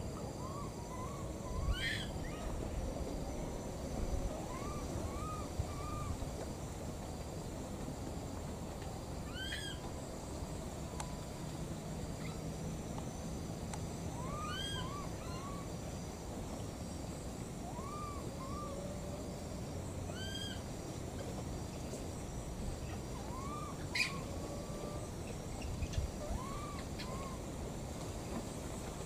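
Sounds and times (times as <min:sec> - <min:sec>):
baby monkey coo calls: 0:00.4 - 0:02.6, 0:04.4 - 0:06.2, 0:09.3 - 0:09.8, 0:14.1 - 0:15.7, 0:17.6 - 0:19.2, 0:20.1 - 0:20.6, 0:23.0 - 0:27.4.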